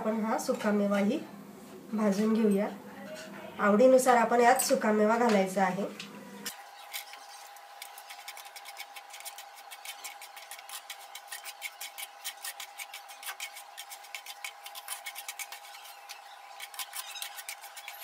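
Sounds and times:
wooden spatula scraping pan: 6.8 - 18.0.

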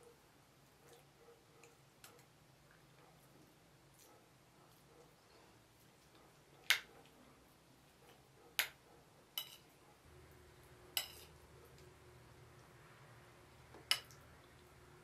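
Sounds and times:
metal spoon clinking on plate: 9.4 - 9.7, 11.0 - 11.4, 13.8 - 14.2.

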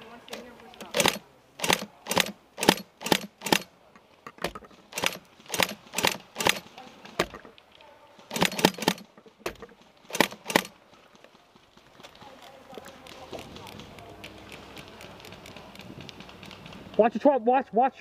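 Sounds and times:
airsoft rifle shots: 0.3 - 3.7, 4.9 - 7.3, 8.3 - 10.8.

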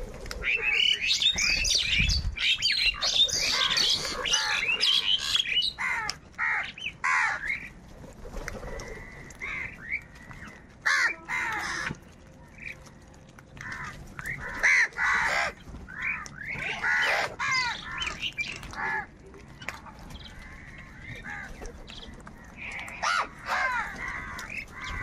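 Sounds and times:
crows cawing: 3.4 - 7.7, 8.6 - 12.0, 13.6 - 19.1, 20.3 - 21.7, 22.4 - 25.0.

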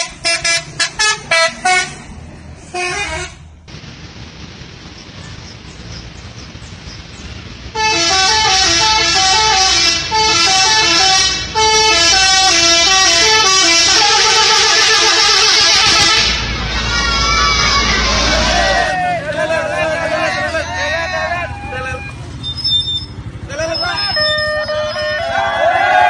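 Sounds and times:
bus musical horn playing a tune: 0.0 - 2.1, 2.7 - 3.4, 7.7 - 16.6, 21.2 - 23.0, 24.0 - 26.0
bus rumble: 0.0 - 26.0.

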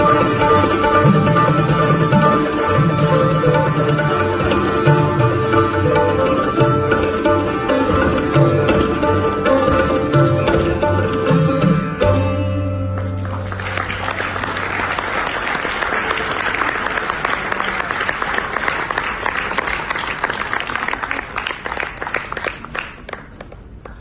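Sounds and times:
sitar and tabla final stroke: 0.0 - 13.8
audience applauding: 13.0 - 24.0.

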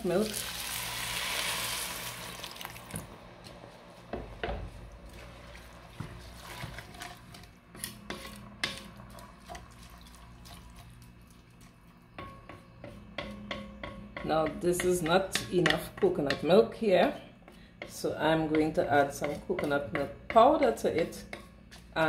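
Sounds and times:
liquid pouring into a pot: 0.2 - 2.9
spatula stirring in a pot: 5.1 - 22.0.

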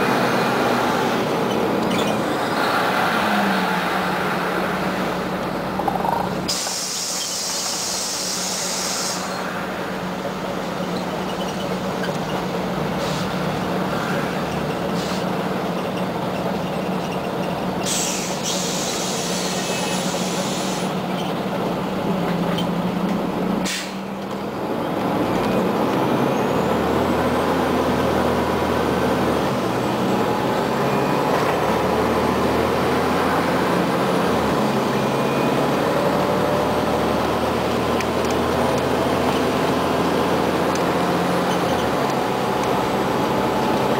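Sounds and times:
bus engine hum: 0.0 - 43.9
road noise: 0.0 - 43.9
compressed air hissing: 6.5 - 9.4.

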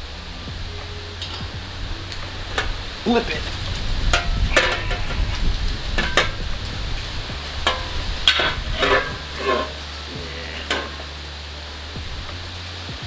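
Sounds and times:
sheet metal clicks and scrapes: 4.1 - 6.5, 7.5 - 10.0.

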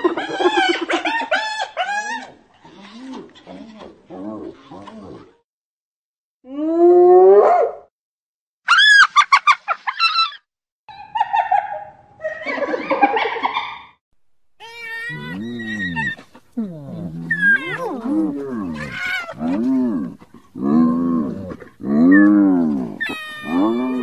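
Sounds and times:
hyena whooping: 14.6 - 19.4, 22.0 - 24.0
rough hyena calls: 14.7 - 24.0.

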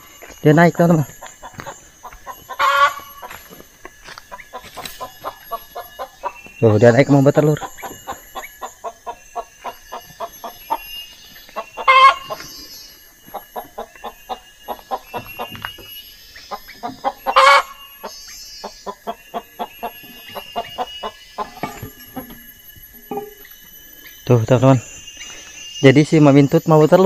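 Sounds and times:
hen clucking: 0.8 - 3.5, 4.2 - 6.5, 7.3 - 10.9, 11.5 - 12.6, 13.3 - 15.8, 16.4 - 22.4
hen squawking: 11.8 - 12.4, 16.8 - 17.8.

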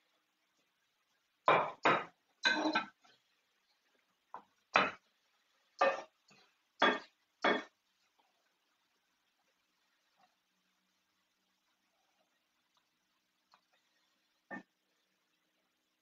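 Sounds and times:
metal tongs clanking on frying pan: 1.9 - 3.0.

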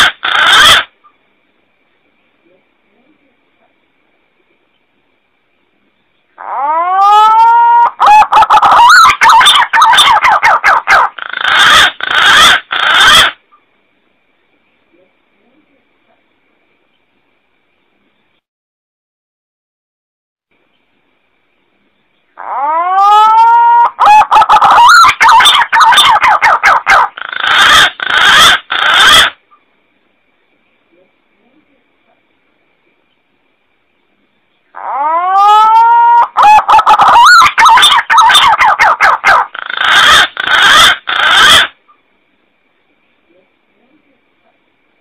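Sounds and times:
pigeon calling: 0.0 - 0.9, 6.4 - 13.4, 22.4 - 29.6, 34.7 - 41.8
pigeon whistling call: 34.9 - 41.7.

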